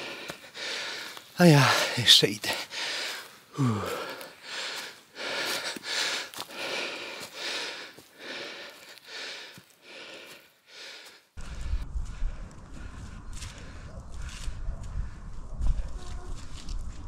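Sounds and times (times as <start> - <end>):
person breathing hard: 0.0 - 15.4
low rumble: 11.4 - 17.0.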